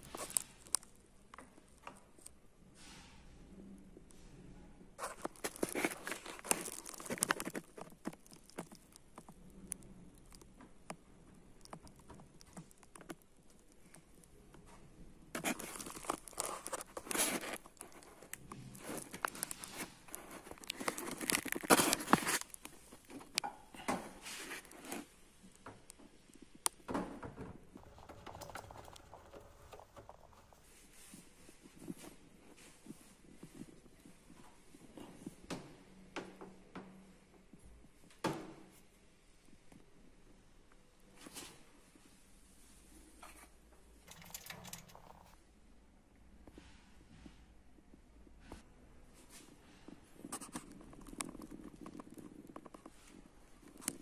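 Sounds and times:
hands handling plastic parts: 27.7 - 31.1, 44.0 - 45.4.

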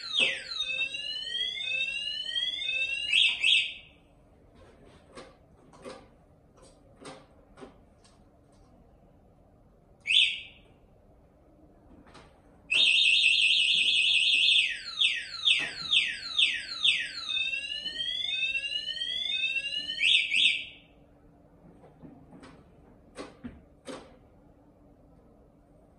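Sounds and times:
scooter alarm siren: 0.0 - 4.0, 10.1 - 10.6, 12.7 - 20.9.

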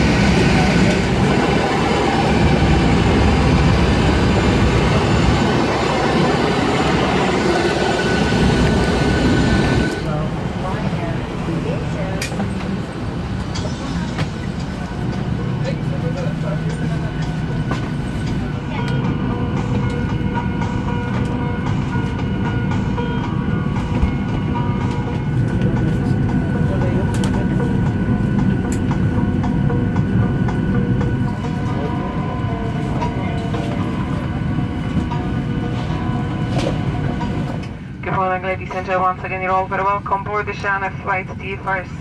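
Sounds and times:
aircraft engine rumble: 0.0 - 42.0
high whine: 12.8 - 42.0.

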